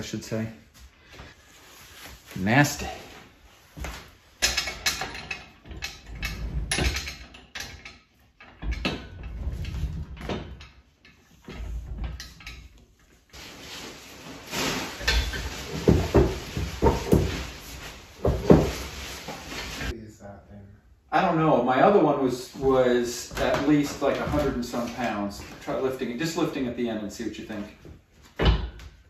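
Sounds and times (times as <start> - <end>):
metal clanks and rattles: 4.3 - 13.3, 14.5 - 19.8.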